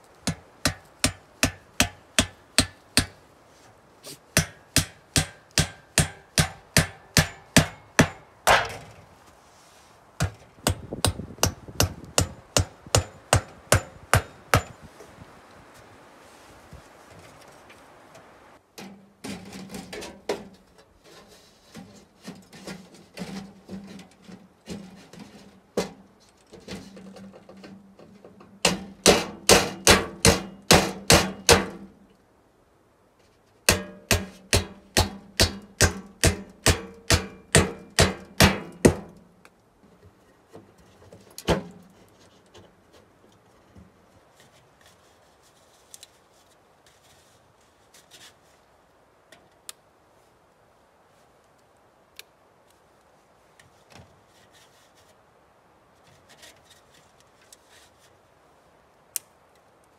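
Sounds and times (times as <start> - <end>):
hammering on sheet metal: 0.2 - 3.2, 4.4 - 8.8, 10.2 - 14.8, 28.6 - 31.8, 33.7 - 39.1.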